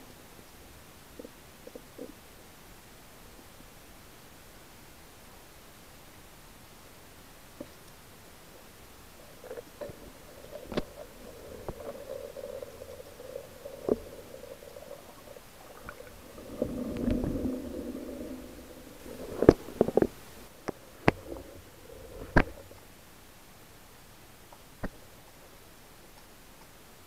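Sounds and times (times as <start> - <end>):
faint steady hum: 0.0 - 27.0
underwater churning surge: 9.1 - 22.7.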